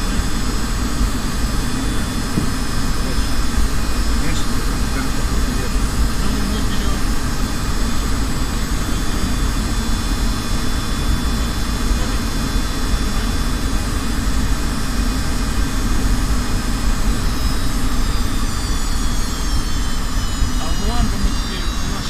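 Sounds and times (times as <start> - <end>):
aircraft engine rumble: 0.0 - 22.0
high-pitched engine whine: 0.0 - 22.0.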